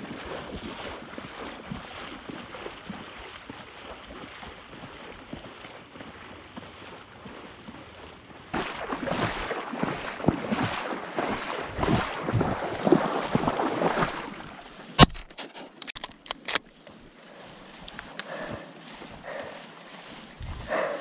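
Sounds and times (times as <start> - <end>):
water sloshing and splashing: 0.0 - 21.0
wind noise on microphone: 20.3 - 20.9.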